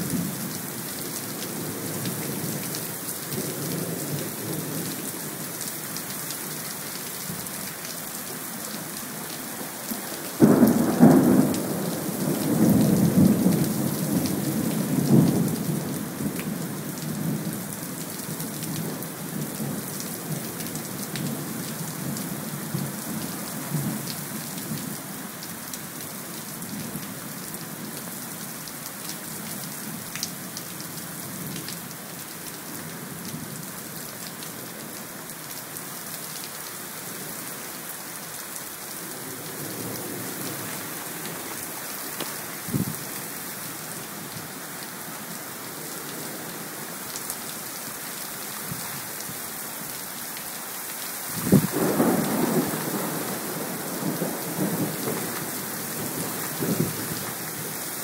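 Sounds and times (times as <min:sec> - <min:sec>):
heavy rain hissing: 0:51.2 - 0:58.0
thunder rumbling: 0:51.4 - 0:55.2.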